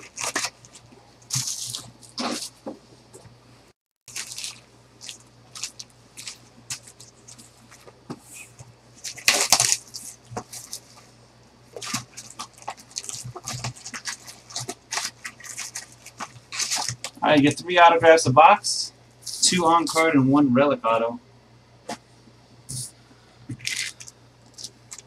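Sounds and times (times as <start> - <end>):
foil card packs clicking and rustling: 0.0 - 2.6, 4.1 - 8.0, 9.0 - 11.0, 11.7 - 17.2, 23.6 - 25.0
plastic shrink-wrap crinkling: 0.0 - 2.6, 4.1 - 7.9, 9.0 - 11.0, 11.7 - 17.2, 23.6 - 25.0.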